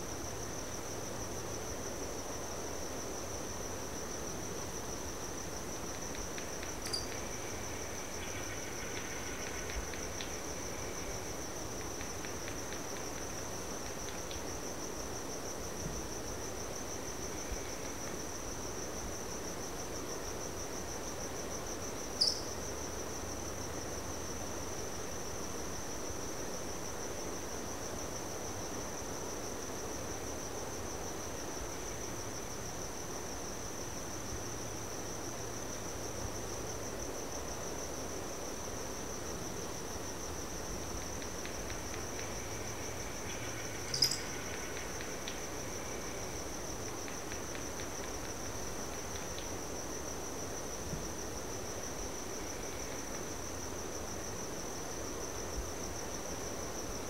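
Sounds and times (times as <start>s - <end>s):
crickets trilling: 0.0s - 57.0s
sharp chirp: 6.8s - 7.2s, 22.2s - 22.5s, 43.8s - 44.3s.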